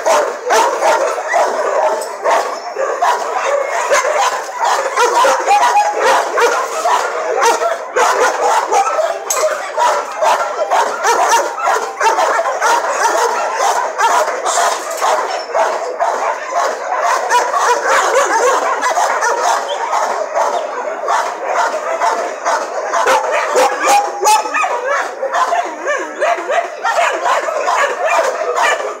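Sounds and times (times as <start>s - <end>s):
dogs barking and yipping: 0.0s - 29.0s.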